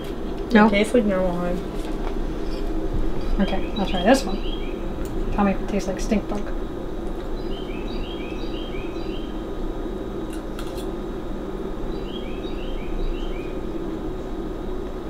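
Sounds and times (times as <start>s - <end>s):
steady low hum: 0.0s - 15.0s
songbird singing: 3.2s - 9.6s, 11.7s - 14.4s.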